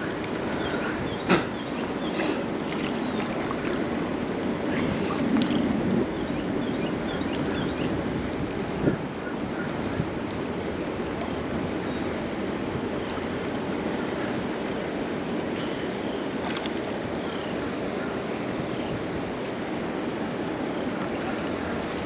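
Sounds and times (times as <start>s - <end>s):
river running over rocks: 0.0s - 6.0s.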